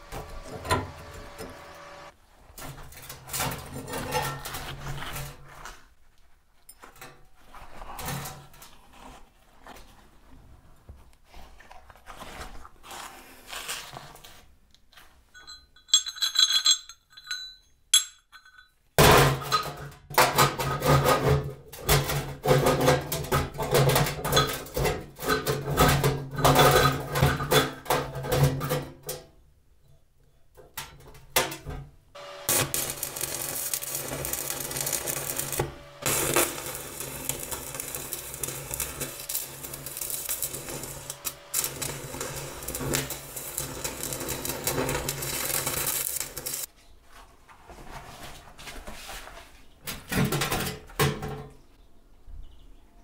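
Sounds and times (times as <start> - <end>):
rebar clinking on steel plate: 15.4 - 19.9
arc welding crackling hiss: 32.2 - 46.7.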